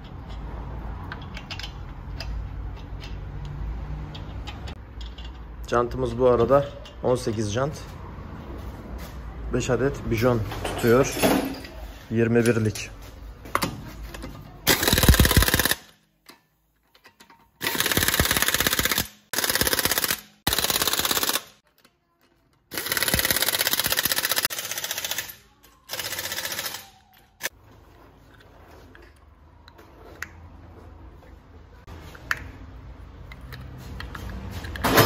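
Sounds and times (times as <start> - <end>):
impact wrench rattling: 14.7 - 16.0, 17.0 - 21.6, 22.7 - 27.5.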